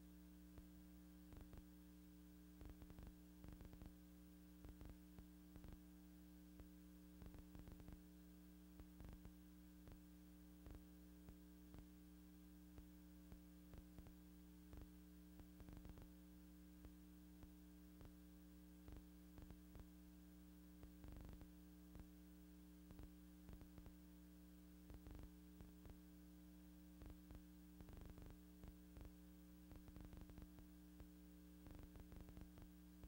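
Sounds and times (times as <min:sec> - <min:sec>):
faint electrical hum: 0:00.0 - 0:33.0.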